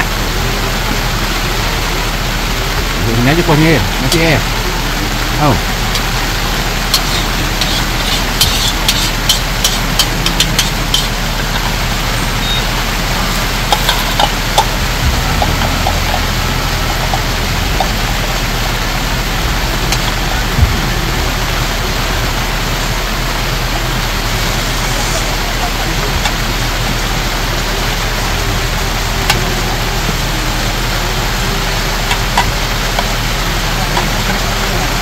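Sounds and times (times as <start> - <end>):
steady rain falling: 0.0 - 35.0
water dripping ticks: 5.3 - 12.6, 13.4 - 20.6, 27.7 - 35.0.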